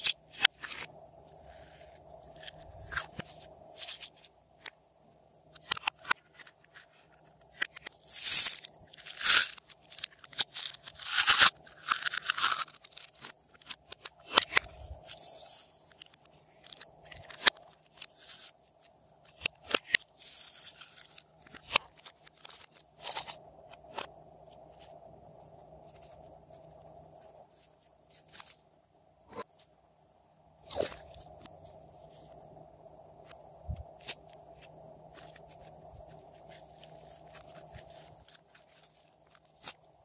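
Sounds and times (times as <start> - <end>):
faint steady hum: 0.0 - 40.0
beads crackling into slime: 7.8 - 13.4.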